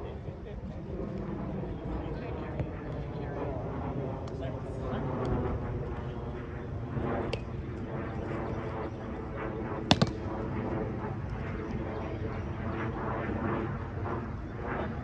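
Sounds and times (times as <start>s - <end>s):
ball smacks: 9.9s - 10.3s.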